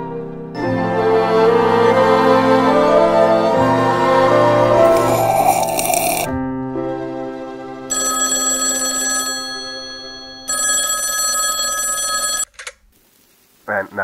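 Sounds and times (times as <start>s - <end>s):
bright bell-like ringing: 7.9s - 12.2s.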